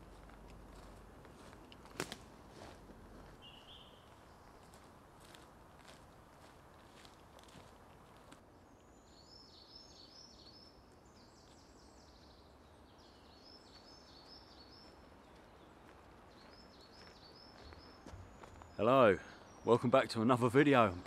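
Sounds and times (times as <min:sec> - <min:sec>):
songbird singing: 0:03.0 - 0:05.5, 0:06.8 - 0:21.0.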